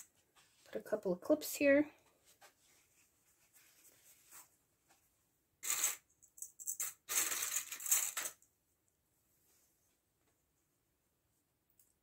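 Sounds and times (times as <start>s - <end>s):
fabric rustling: 2.2s - 5.1s.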